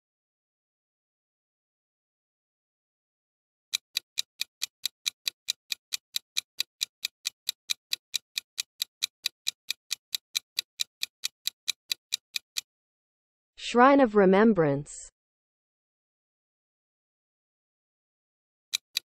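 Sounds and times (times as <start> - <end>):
clock ticking: 3.8 - 12.7, 18.7 - 19.0.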